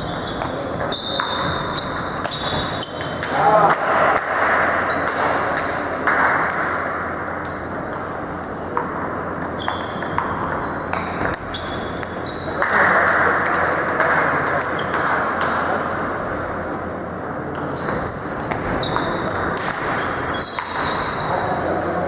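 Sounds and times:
short high squeaks: 17.7s - 19.2s, 20.0s - 21.7s.

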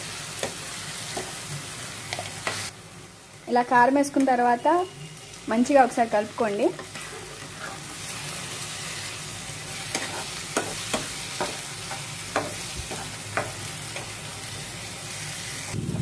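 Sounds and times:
food sizzling in a pan: 0.0s - 16.0s
metal spatula scraping a pan: 6.7s - 9.0s, 9.6s - 14.2s.

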